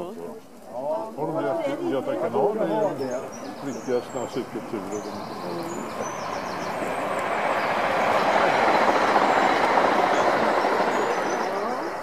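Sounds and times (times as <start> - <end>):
vehicle passing by: 3.6 - 12.0.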